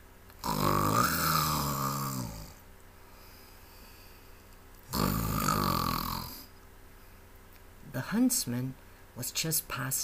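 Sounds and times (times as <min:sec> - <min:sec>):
loud snore: 0:00.4 - 0:02.6, 0:04.9 - 0:06.5.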